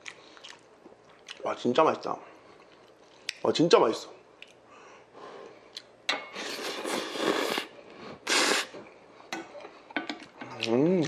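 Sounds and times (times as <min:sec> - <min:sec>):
person slurping noodles: 0:06.3 - 0:08.8.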